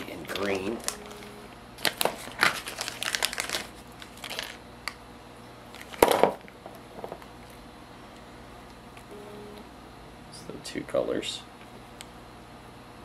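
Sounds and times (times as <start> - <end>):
plastic bag crinkling: 0.1 - 1.2, 1.8 - 5.0, 5.7 - 6.4.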